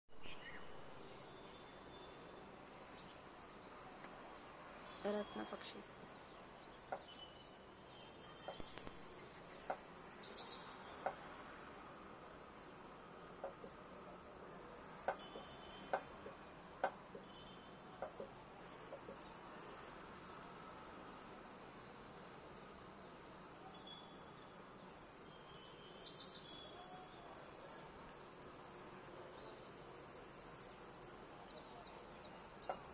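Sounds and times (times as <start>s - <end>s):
outdoor background hiss: 0.1s - 32.9s
bird chirps: 4.9s - 11.3s
faint high chirp: 6.9s - 9.5s, 23.6s - 24.5s, 25.2s - 27.7s.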